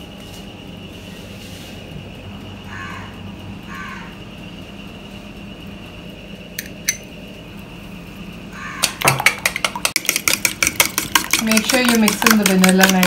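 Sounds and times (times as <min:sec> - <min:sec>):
steady hum: 0:00.0 - 0:13.0
spoon beating in metal bowl: 0:08.8 - 0:13.0.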